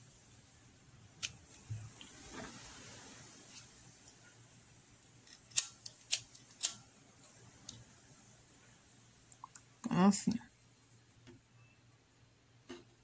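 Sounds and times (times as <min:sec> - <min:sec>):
scissors snipping: 0:05.2 - 0:06.8.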